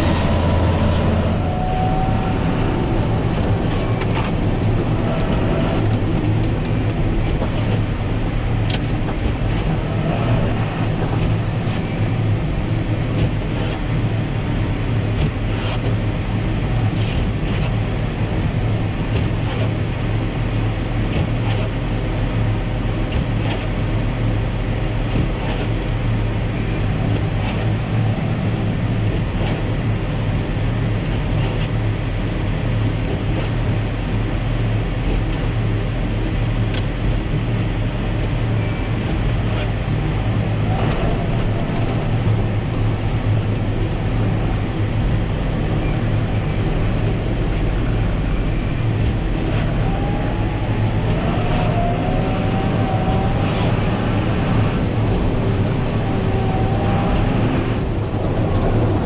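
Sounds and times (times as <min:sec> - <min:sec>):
tractor diesel engine humming: 0:00.0 - 0:19.2, 0:37.2 - 0:59.0.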